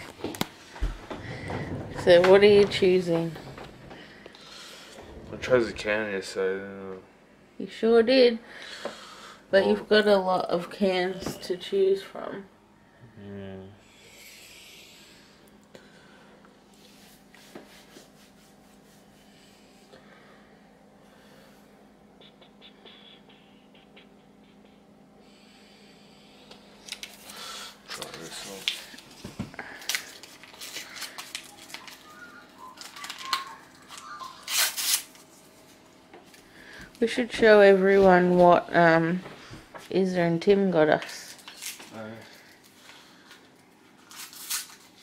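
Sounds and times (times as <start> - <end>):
low hum: 0.0 - 7.8, 18.8 - 37.9
paper crinkling and tearing: 29.7 - 35.4, 44.0 - 45.0.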